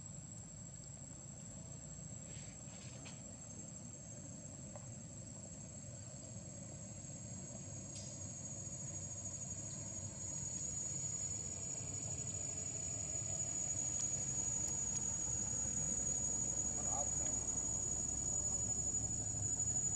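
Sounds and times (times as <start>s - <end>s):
low rumbling background noise: 0.0s - 19.9s
high-pitched insect drone: 5.7s - 19.9s.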